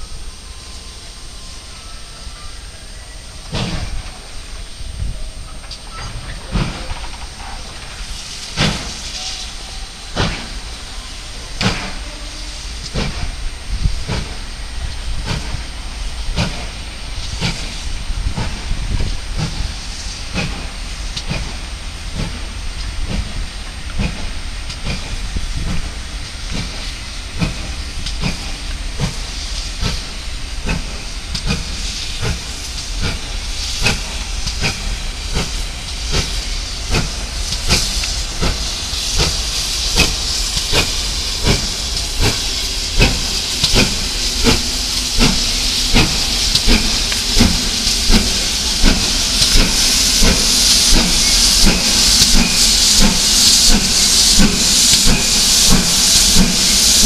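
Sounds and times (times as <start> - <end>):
steam hiss: 0.0 - 57.0
steam locomotive chuffing: 0.0 - 57.0.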